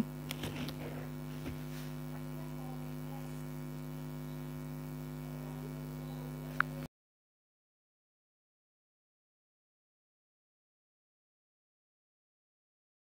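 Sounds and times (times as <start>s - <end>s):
low electrical hum: 0.0s - 6.9s.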